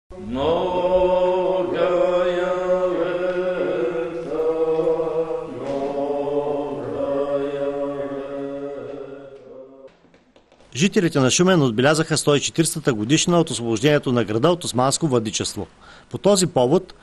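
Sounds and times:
liturgical chant: 0.1s - 10.0s.

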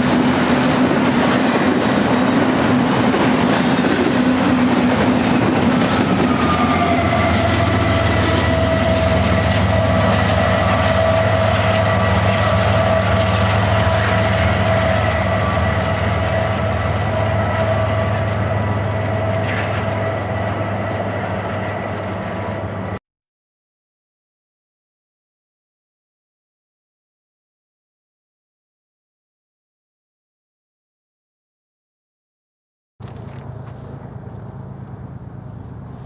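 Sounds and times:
freight train rolling past: 0.0s - 23.0s, 33.0s - 36.0s.

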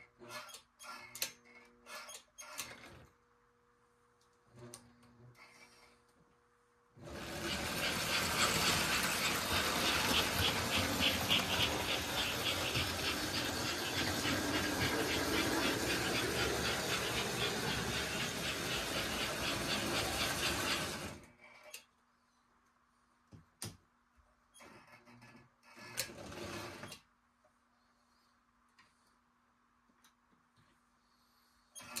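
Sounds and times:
wheels clattering on metal rails: 7.0s - 21.1s
toy train motor whirring: 7.0s - 21.8s.

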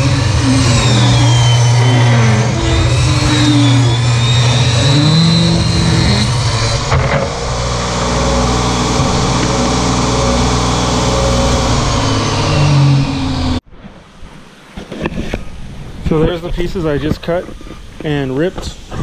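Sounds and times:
saw blade cutting board: 0.0s - 13.6s
table saw running: 0.0s - 13.6s.

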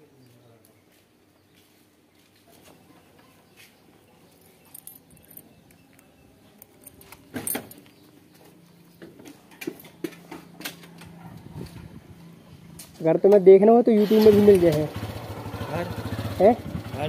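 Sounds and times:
small metal parts clinking: 4.3s - 8.1s.

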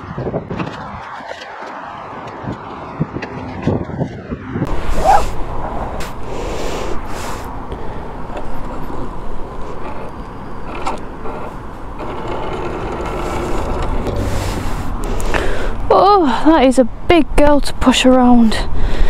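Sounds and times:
wind rumble on microphone: 0.0s - 19.0s
motorcycle ticking and creaking: 7.7s - 14.3s.

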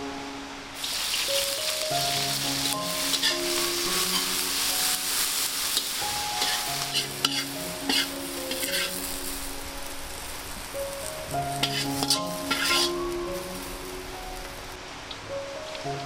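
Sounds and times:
greens sizzling in a wok: 0.7s - 14.8s
spatula scraping and knocking wok: 2.1s - 9.4s, 11.5s - 13.0s.

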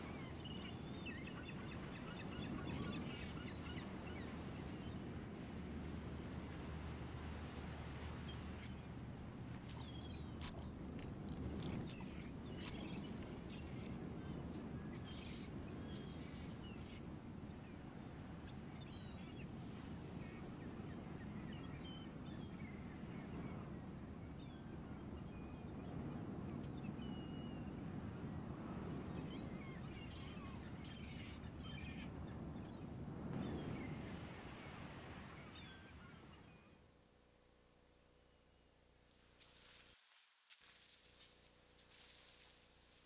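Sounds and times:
birds chirping: 8.2s - 17.8s.

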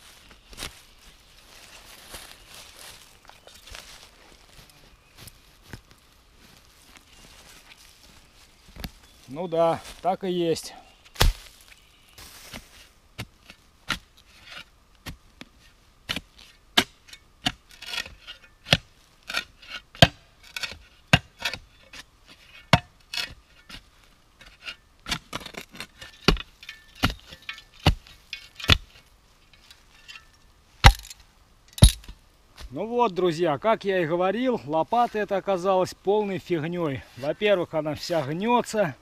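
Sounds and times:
spade chopping into soil: 11.1s - 11.6s, 25.0s - 29.0s, 30.2s - 31.1s, 31.8s - 32.2s
blade scraping through dirt: 11.1s - 31.1s.

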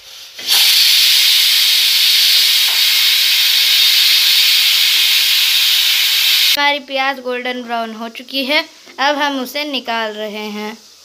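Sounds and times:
pressure cooker whistle hissing: 0.0s - 6.6s.

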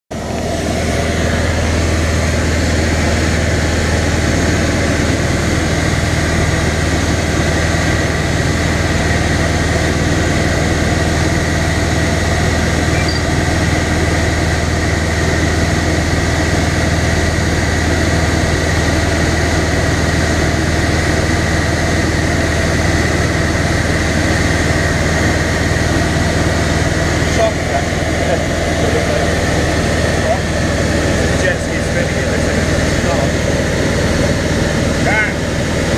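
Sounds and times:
aircraft engine and propeller hum: 0.1s - 35.9s
faint high whine: 12.7s - 13.5s.

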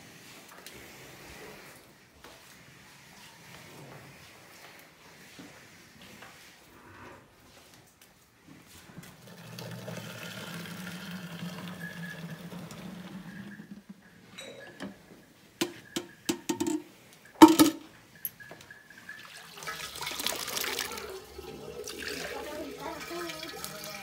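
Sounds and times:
milk pouring: 9.0s - 14.2s, 15.6s - 24.0s.

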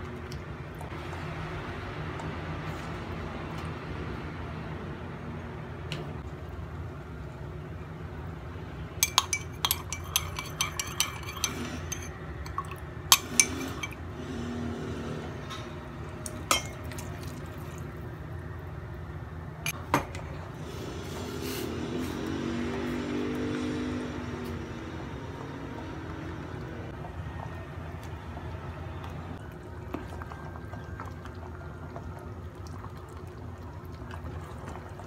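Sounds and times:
metal spoon clinking ceramic cup: 9.0s - 14.0s.

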